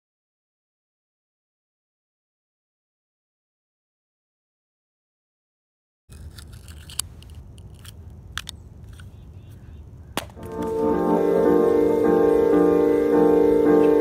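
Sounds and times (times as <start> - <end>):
sharp clicks: 6.1 - 9.3
low outdoor rumble: 6.1 - 14.0.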